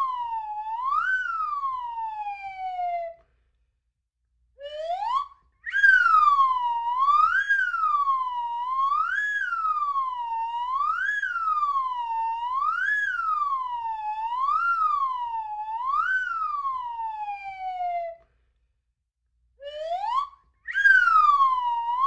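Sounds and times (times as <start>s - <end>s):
slide whistle swooping: 4.7s - 11.8s, 19.6s - 22.0s.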